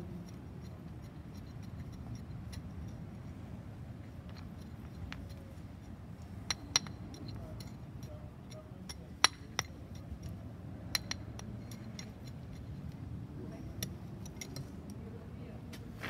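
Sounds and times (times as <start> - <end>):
hammer tapping paving stones: 6.2 - 12.6.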